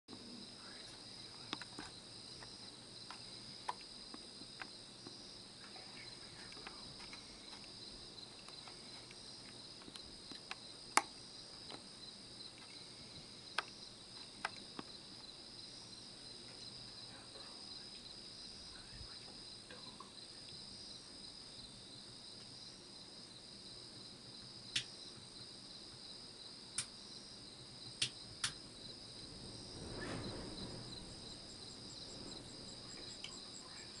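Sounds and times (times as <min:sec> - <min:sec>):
crickets trilling: 0:00.1 - 0:34.0
sharp clicks: 0:28.0 - 0:28.6.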